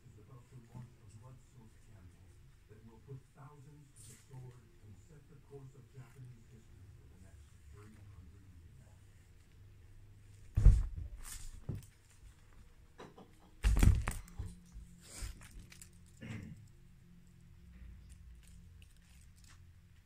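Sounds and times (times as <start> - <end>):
cats thumping on carpet: 10.4 - 11.9, 13.6 - 15.4.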